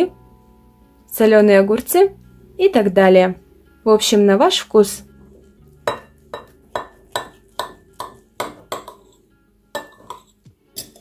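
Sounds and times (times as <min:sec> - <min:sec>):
cutlery clinking on ceramic plate: 0:05.9 - 0:09.2, 0:09.8 - 0:11.0.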